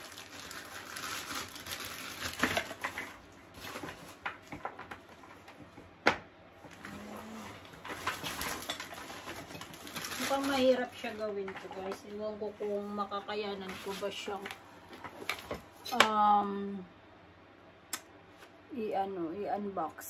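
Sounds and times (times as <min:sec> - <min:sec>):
plastic packaging rustling: 0:00.0 - 0:05.9, 0:06.6 - 0:16.0.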